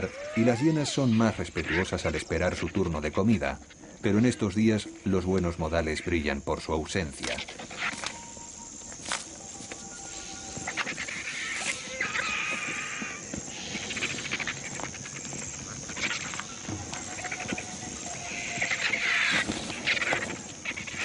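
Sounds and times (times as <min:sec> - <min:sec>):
hyenas calling: 0:00.0 - 0:06.4, 0:07.2 - 0:21.0.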